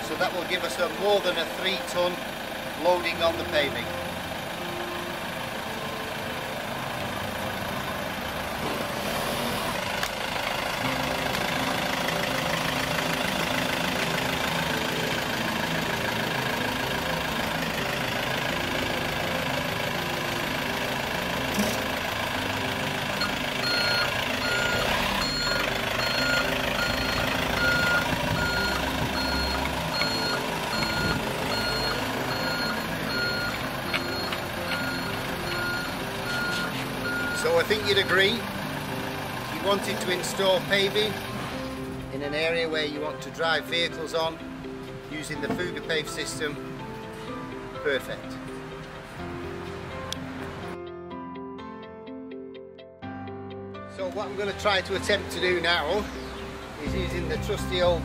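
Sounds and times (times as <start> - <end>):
truck engine running: 0.0 - 42.6
reversing alarm beeping: 23.2 - 38.4.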